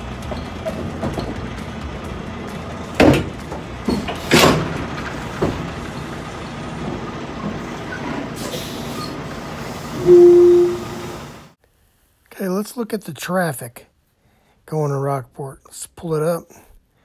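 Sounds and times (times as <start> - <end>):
heavy truck idling: 0.0 - 11.6
sharp clanks or hisses: 3.9 - 5.2, 8.4 - 11.0.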